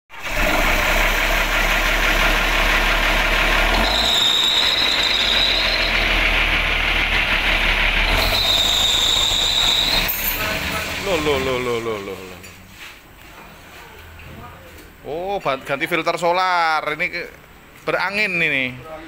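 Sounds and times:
bus diesel engine idling: 0.1 - 12.3.

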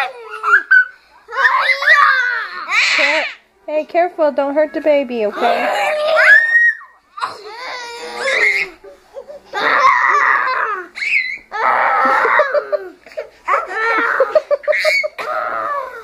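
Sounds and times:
children laughing and squealing: 0.0 - 3.5, 5.4 - 16.0.

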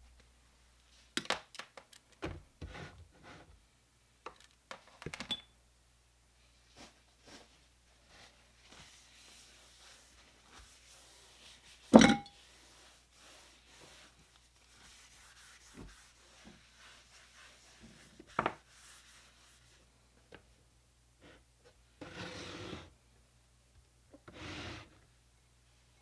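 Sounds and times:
metal pot clunking: 12.0 - 12.3.

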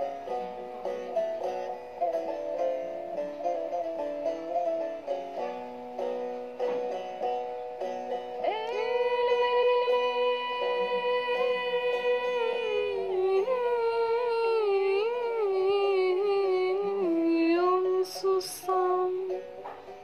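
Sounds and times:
slow melody music: 0.0 - 20.0.

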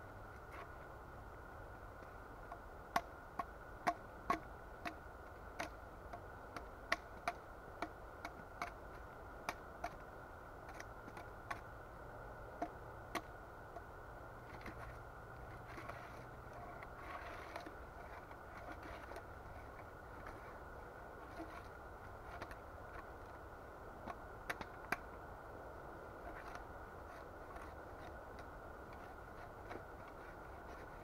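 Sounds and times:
soft rustling: 13.7 - 25.2, 26.1 - 31.0.

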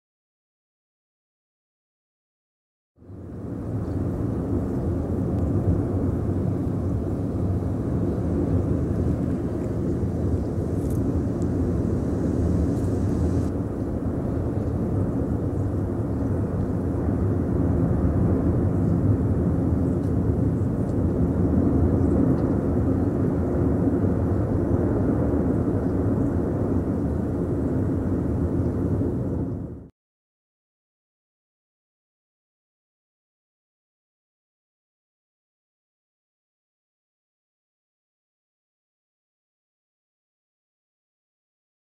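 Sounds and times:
volcano erupting low rumble: 3.0 - 29.9.

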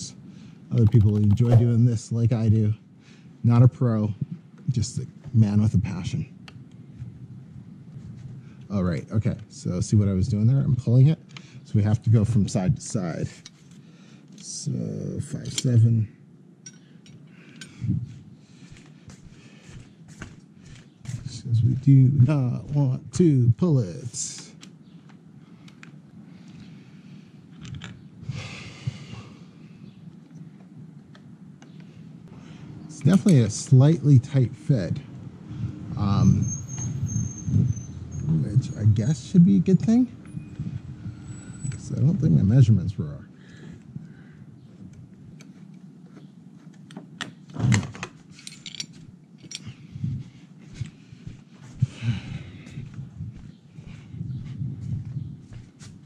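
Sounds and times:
low steady hum: 0.0 - 56.0
person breathing out: 28.2 - 29.7, 51.8 - 52.8
light metal clicks and rattles: 48.0 - 49.8.

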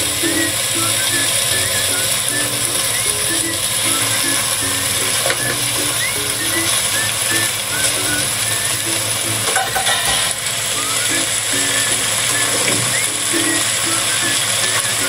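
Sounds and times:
meat sizzling in hot oil: 0.0 - 15.0.

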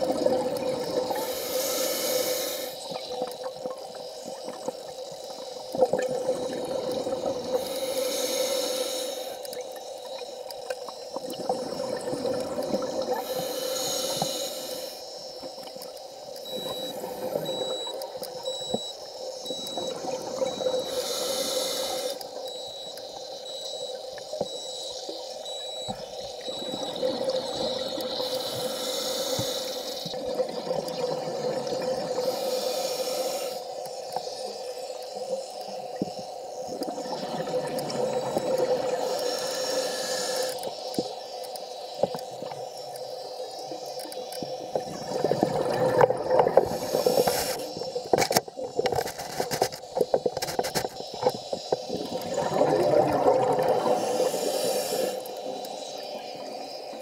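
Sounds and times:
diver's bubbles gurgling underwater: 0.0 - 1.3, 5.8 - 7.6, 11.2 - 13.3, 26.5 - 28.3, 30.2 - 32.2, 36.7 - 39.1, 44.7 - 48.2, 51.8 - 55.1
low underwater hum: 0.0 - 57.0
rushes of hissing noise: 1.1 - 3.0, 7.5 - 9.4, 13.2 - 15.4, 20.8 - 22.2, 28.2 - 30.1, 32.2 - 35.0, 39.0 - 42.0, 46.5 - 48.2, 53.8 - 57.0.

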